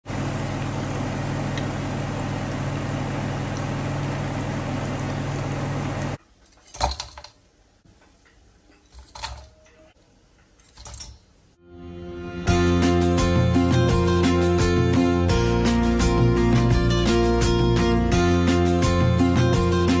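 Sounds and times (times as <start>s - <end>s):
deep-frying sizzle: 0.1s - 6.2s.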